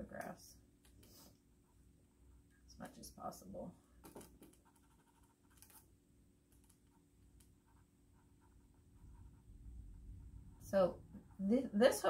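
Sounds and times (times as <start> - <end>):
pencil scratching on paper: 4.0 - 5.8, 6.6 - 11.7.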